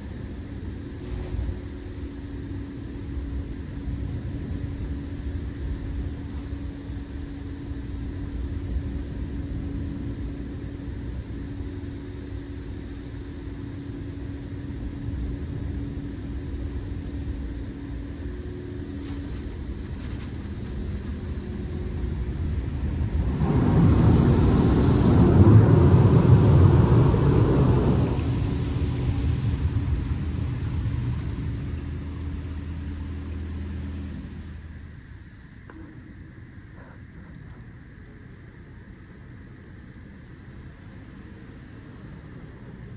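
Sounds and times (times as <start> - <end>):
car wash low rumble: 0.0 - 42.9
faint hum: 0.0 - 42.9
loud rushing noise: 22.7 - 32.6.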